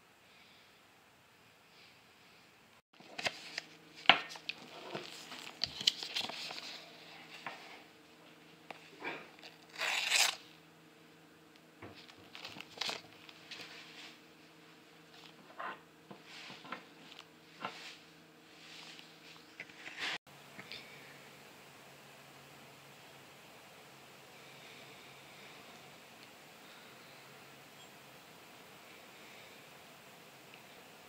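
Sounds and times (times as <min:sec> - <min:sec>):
paper crinkling and tearing: 0:03.0 - 0:07.4, 0:09.4 - 0:10.5, 0:12.0 - 0:13.9
knife slicing paper: 0:09.7 - 0:10.5.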